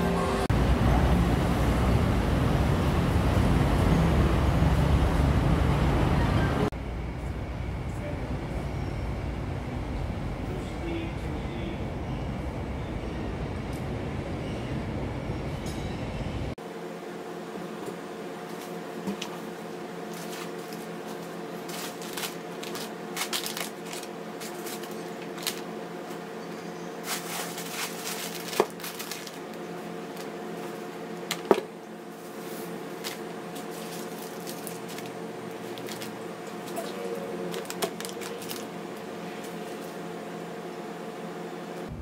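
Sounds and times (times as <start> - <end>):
plastic packaging crinkling: 20.1 - 25.7, 27.0 - 30.3, 33.0 - 36.8, 37.4 - 38.7.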